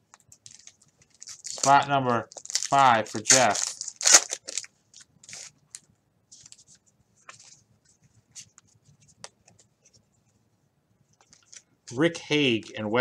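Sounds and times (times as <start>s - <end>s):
trading cards rustling: 0.4s - 7.6s, 11.2s - 12.9s.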